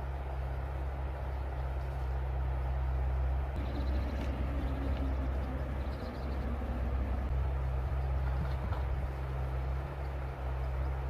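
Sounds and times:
small birds chirping: 3.6s - 7.3s.

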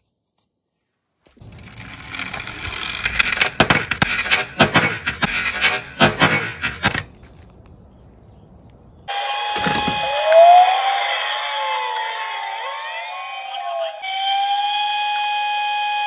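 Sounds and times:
toy car rolling on wooden boards: 1.4s - 7.4s.

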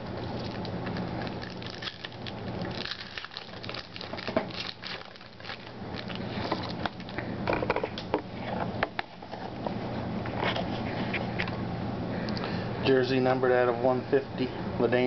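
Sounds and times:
foil wrapper crinkling: 0.0s - 7.3s.

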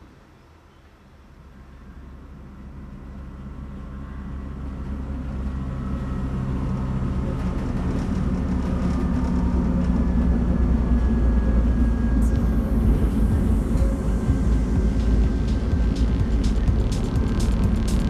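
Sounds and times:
railcar motor and gear hum: 0.0s - 18.0s
faint high whine: 8.9s - 18.0s.

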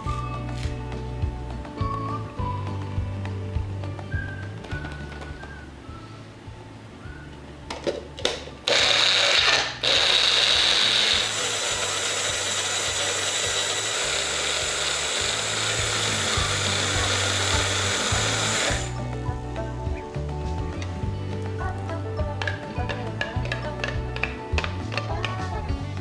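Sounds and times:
blender motor running: 8.7s - 19.0s.

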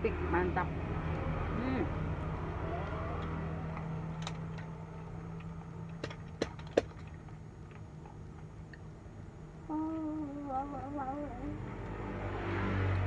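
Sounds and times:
low motor hum: 7.0s - 13.0s.

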